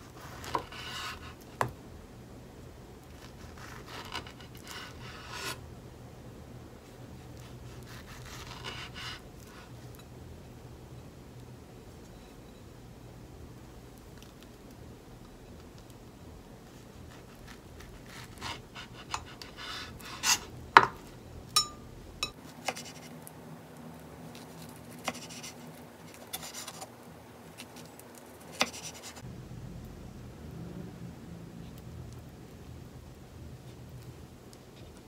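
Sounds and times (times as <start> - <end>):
knife slicing figs: 0.2 - 1.8, 17.0 - 23.2, 24.4 - 26.9, 27.6 - 29.2
knife tapping cutting board: 20.8 - 21.0.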